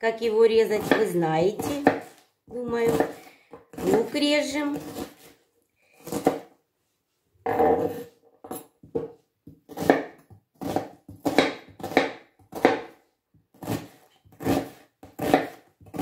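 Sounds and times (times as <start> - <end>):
knife chopping on cutting board: 0.8 - 4.1, 6.0 - 6.5, 7.5 - 16.0.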